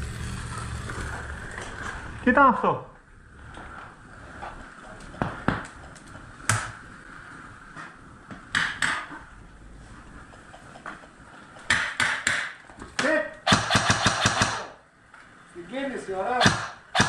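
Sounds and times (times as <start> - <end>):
airsoft gunfire cracks: 13.5 - 14.8, 16.4 - 17.0.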